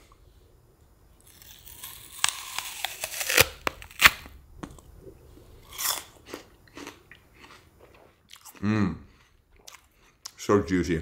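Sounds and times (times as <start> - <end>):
apple being bitten and crunched: 1.2 - 4.9, 5.6 - 8.7.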